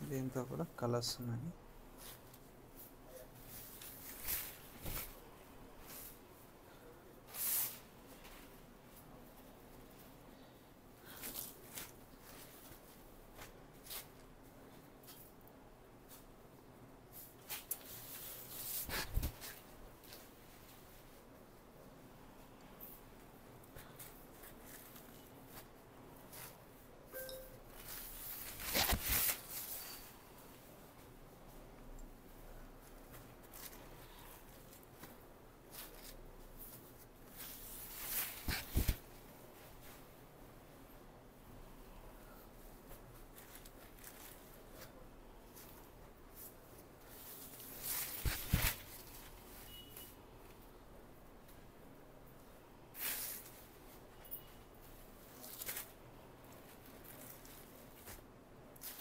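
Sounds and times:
fabric rustling: 1.8 - 16.4, 17.1 - 21.6, 22.8 - 59.0
cloth swishing: 1.9 - 6.3, 17.1 - 21.2, 32.8 - 40.2, 42.8 - 49.6, 52.9 - 54.0.

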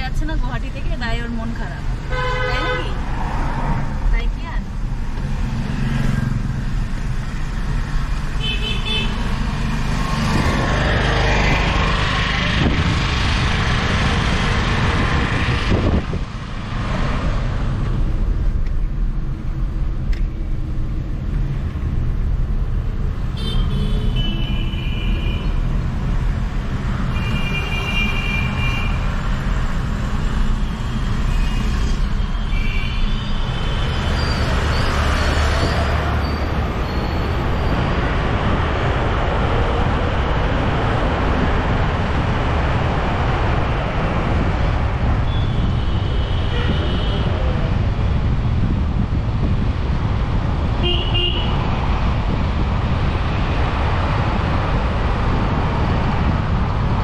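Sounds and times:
road and traffic noise: 0.0 - 57.0
wind rumble on microphone: 9.5 - 22.6, 35.4 - 57.0.

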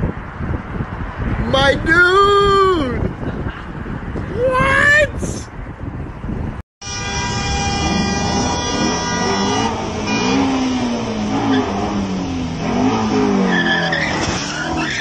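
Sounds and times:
car engine revving: 7.0 - 15.0.

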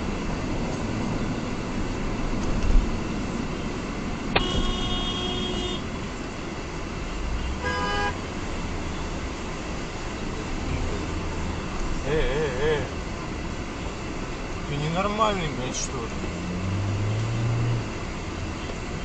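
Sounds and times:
road and engine noise: 0.0 - 19.0
car horn blast: 4.4 - 5.8, 7.6 - 8.2.

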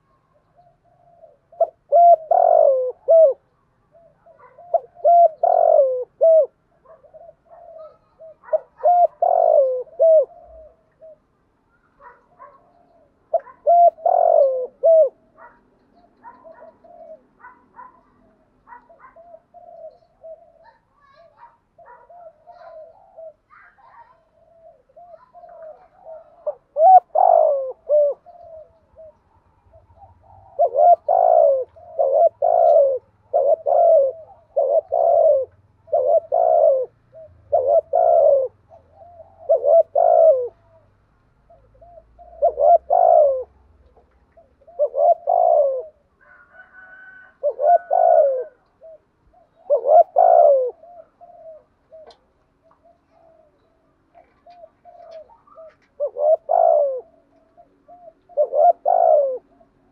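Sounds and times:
dove cooing: 0.0 - 59.9.

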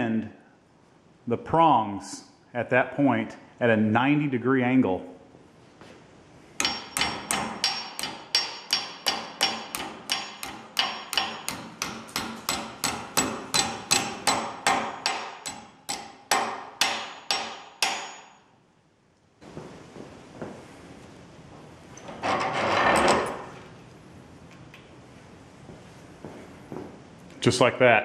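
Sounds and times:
hammer tapping metal fork: 6.6 - 18.4.

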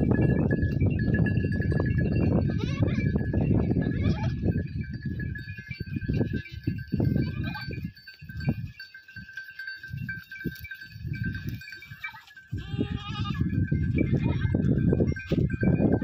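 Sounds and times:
goat bleating: 2.4 - 3.1, 3.8 - 4.4, 6.2 - 7.7, 11.9 - 14.7
goats rustling branches: 6.9 - 15.6.

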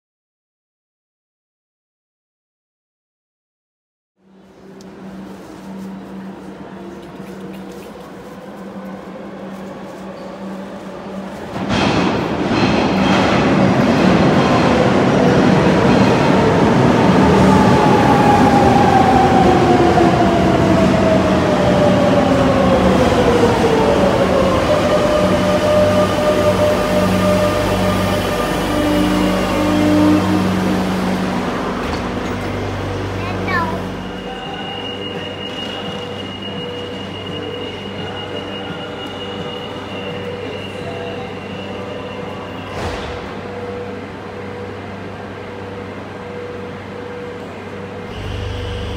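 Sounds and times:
train wheels rumbling on rails: 4.5 - 48.9
train braking: 9.0 - 48.9
train motor whine: 47.4 - 48.9.

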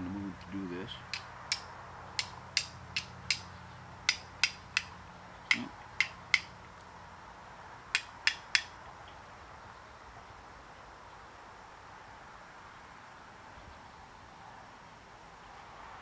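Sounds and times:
fire steel striking flint: 1.1 - 3.5, 4.1 - 6.5, 8.0 - 8.8.

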